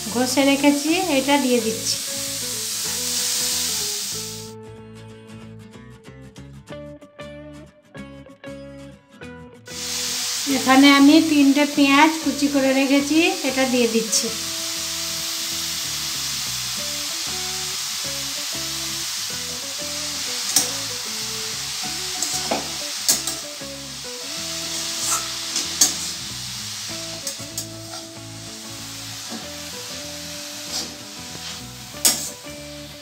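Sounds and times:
vegetables sizzling in oil: 0.0 - 4.5, 9.7 - 33.0
metal spatula scraping wok: 20.1 - 21.3, 22.0 - 23.5, 24.3 - 32.9.

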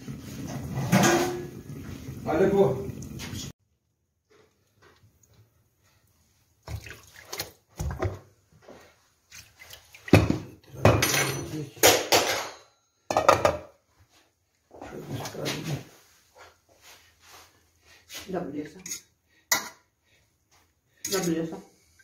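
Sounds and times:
pot and lid clattering in sink: 0.4 - 1.6, 10.1 - 13.8.

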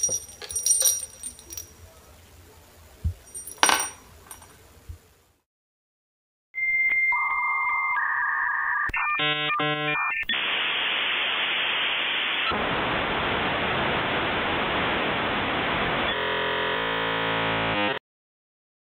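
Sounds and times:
electronic static hiss: 8.0 - 16.2.

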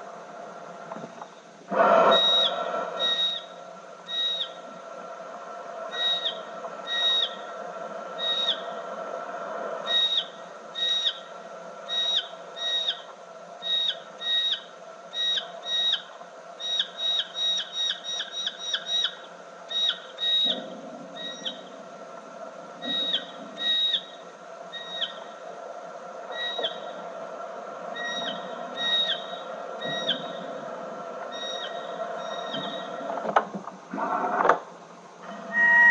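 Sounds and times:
tape hum: 0.0 - 35.9
slowed bat echolocation whistles: 2.1 - 4.7, 5.8 - 8.8, 9.8 - 21.8, 22.8 - 25.4, 26.2 - 27.2, 27.9 - 33.1, 35.3 - 35.9.

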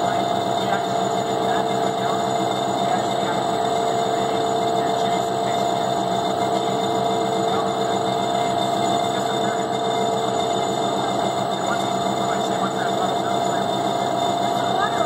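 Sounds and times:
agitator machine whirring: 0.0 - 15.0.

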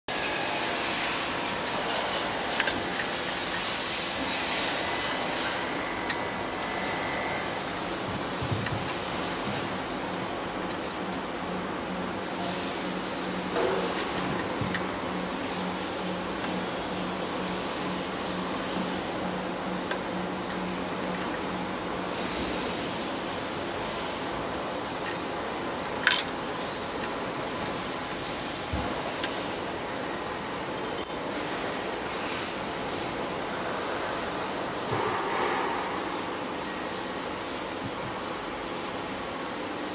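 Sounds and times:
spanner clinking on metal: 25.8 - 27.2, 30.8 - 31.4.

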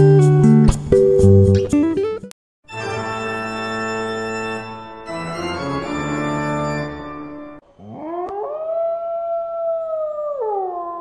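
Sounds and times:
organ chords: 2.7 - 7.6
dog howling: 7.8 - 11.0.

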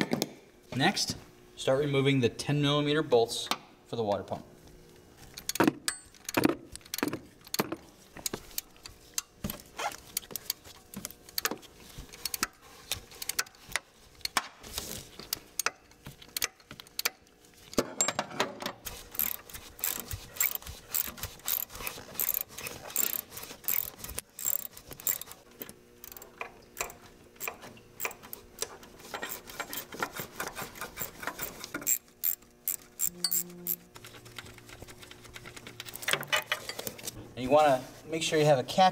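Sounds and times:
hand ratchet clicking: 19.1 - 25.4, 26.0 - 28.7, 31.0 - 36.2.

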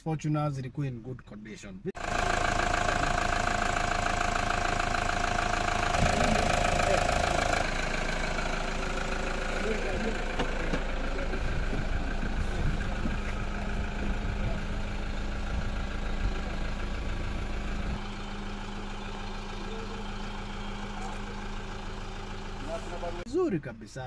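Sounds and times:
vehicle engine idling: 1.9 - 24.0.

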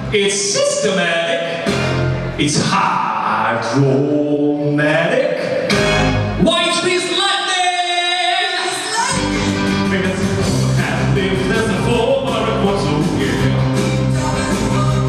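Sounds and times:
live rock band playing: 1.5 - 2.7, 5.6 - 7.2, 8.8 - 15.0
bass guitar: 1.5 - 2.8, 5.4 - 6.8, 9.0 - 15.0
drums: 1.5 - 3.0, 5.4 - 7.2, 8.9 - 15.0.

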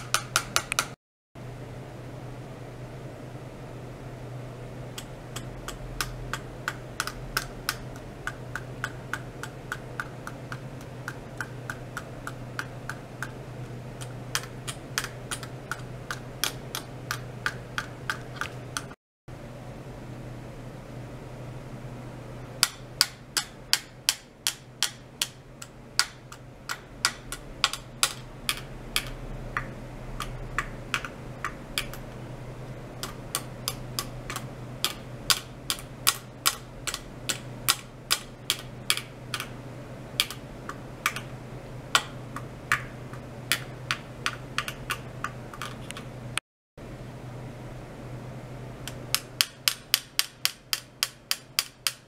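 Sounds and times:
low hum: 25.1 - 49.1.

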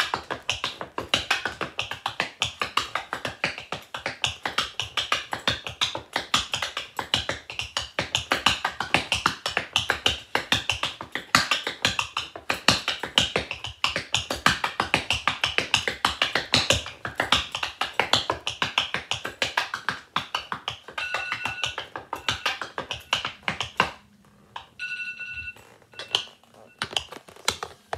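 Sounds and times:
tap shoes on wooden floor: 0.0 - 24.8, 25.6 - 27.9
brief ringing tone: 21.0 - 21.7, 24.8 - 26.8.

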